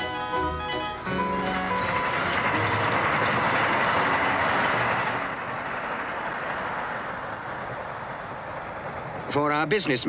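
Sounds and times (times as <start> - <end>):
train running noise: 0.0 - 10.0.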